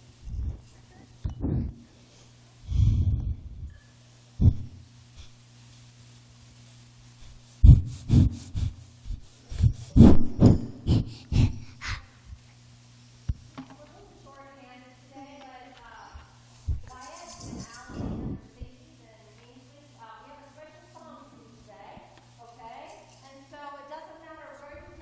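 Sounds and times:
steady electrical hum: 0.0s - 25.0s
microphone handling thumps: 1.2s - 1.8s, 7.6s - 11.2s, 16.6s - 16.9s, 17.5s - 18.5s.

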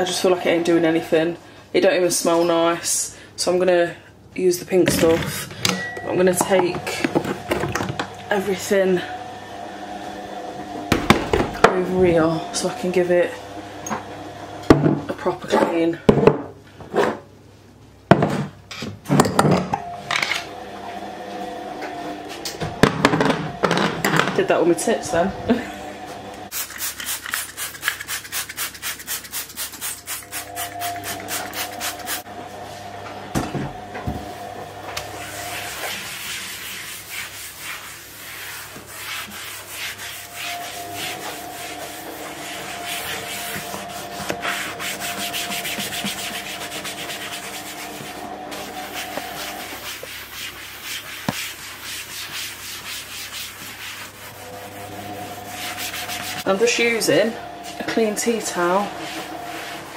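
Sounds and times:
sponge scrubbing a worktop: 24.6s - 32.9s, 34.2s - 57.0s, 57.6s - 59.9s.

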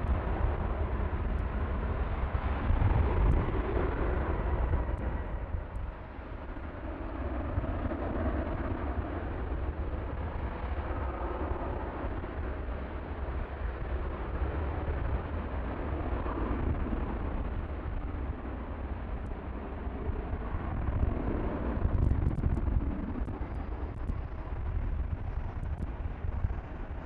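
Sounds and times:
jet airliner engines rumbling: 0.0s - 27.0s.

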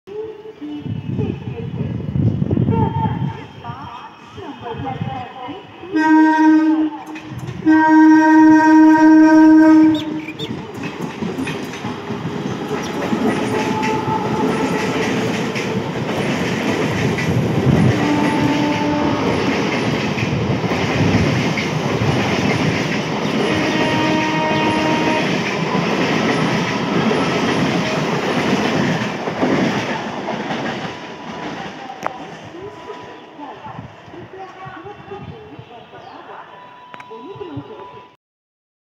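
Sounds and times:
train rumbling past: 0.8s - 38.1s
train horn blasts: 5.9s - 10.4s, 12.6s - 15.3s, 17.7s - 19.5s, 23.4s - 25.5s.

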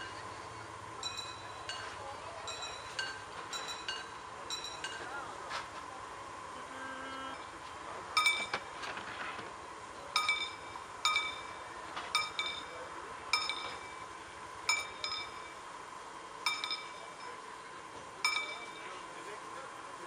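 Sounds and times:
faint high hum: 0.0s - 20.0s
metal striking metal: 10.2s - 14.1s, 14.7s - 15.6s, 16.4s - 17.4s, 18.2s - 18.9s.

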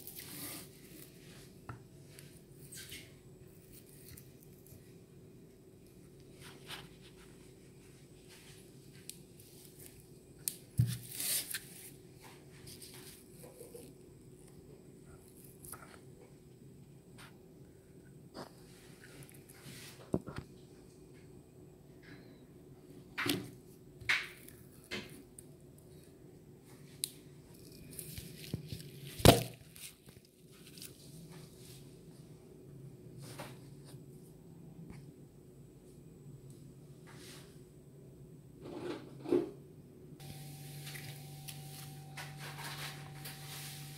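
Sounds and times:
coconut husk tearing: 0.0s - 1.2s, 27.0s - 31.0s.

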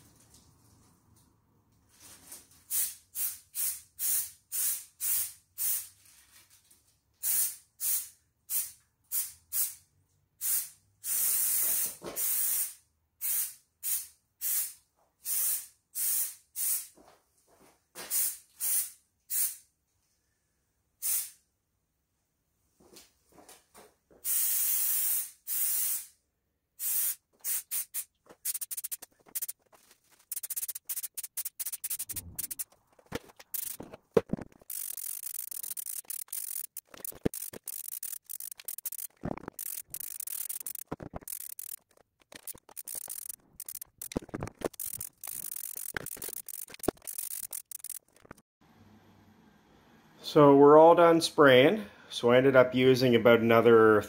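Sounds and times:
aerosol spray hissing: 26.8s - 29.5s, 30.2s - 32.6s.

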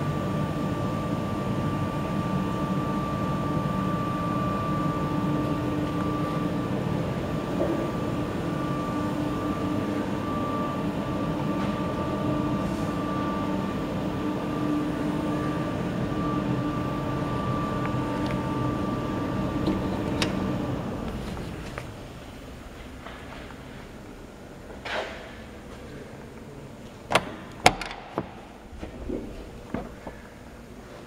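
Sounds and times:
truck diesel engine running: 0.0s - 24.8s.

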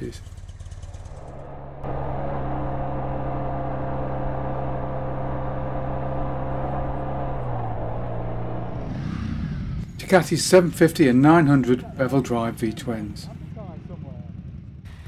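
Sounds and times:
motorcycle engine running: 0.0s - 10.0s, 12.2s - 15.0s
wind: 6.9s - 15.0s.

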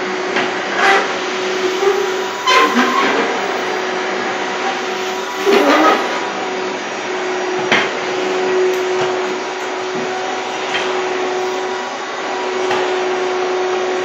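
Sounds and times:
vacuum cleaner running: 0.0s - 14.0s.

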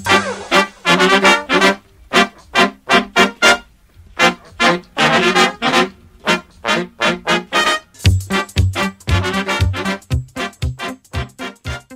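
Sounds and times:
upbeat background music: 0.0s - 1.8s, 6.4s - 11.9s.

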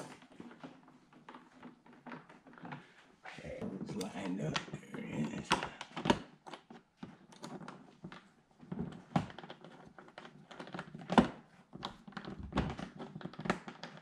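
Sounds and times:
small clicks taps and rattles: 3.9s - 14.0s.

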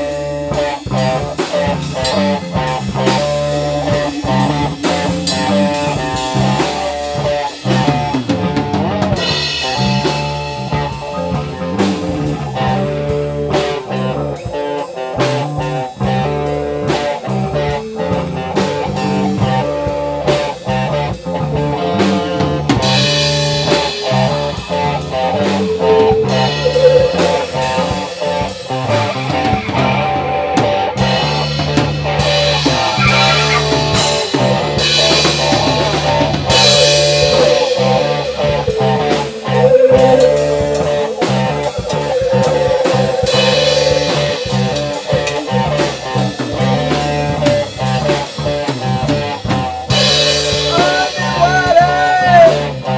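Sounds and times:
drum kit: 0.0s - 21.4s, 22.0s - 30.3s, 31.0s - 52.9s
bass guitar: 0.0s - 52.9s
lead guitar: 0.0s - 52.9s.

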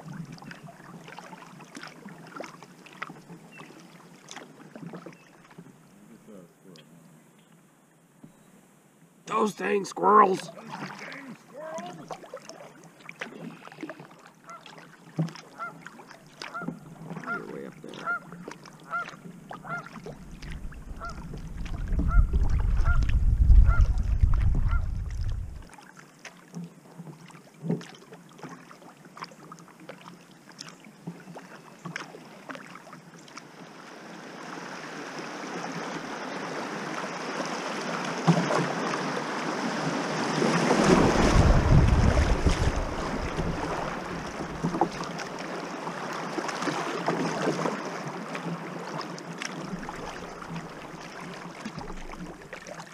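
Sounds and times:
wind rumble on microphone: 20.0s - 25.7s, 40.7s - 45.0s
river rushing over riffle: 33.8s - 48.2s.

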